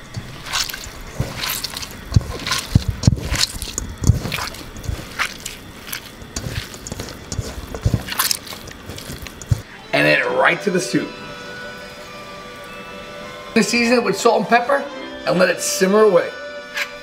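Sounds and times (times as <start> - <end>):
hands squishing ground meat: 0.0 - 9.7
soft low thumps: 0.0 - 9.7.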